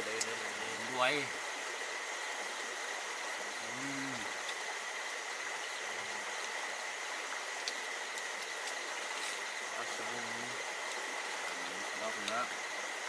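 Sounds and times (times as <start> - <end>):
constant high-pitched tone: 0.0 - 13.0
stream rushing: 0.0 - 13.0
person murmuring: 3.6 - 4.3.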